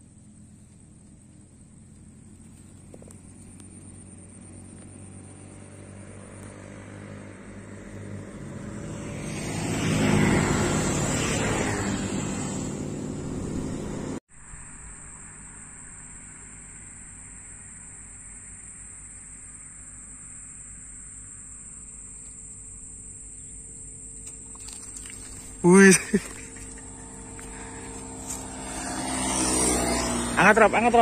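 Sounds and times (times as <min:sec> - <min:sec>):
vehicle engine passing: 0:00.0 - 0:14.2, 0:24.3 - 0:31.0.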